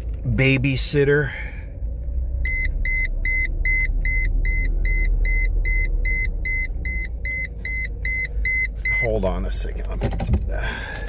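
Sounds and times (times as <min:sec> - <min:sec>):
car engine idling: 0:00.0 - 0:11.0
car warning chime beeping: 0:02.4 - 0:09.7.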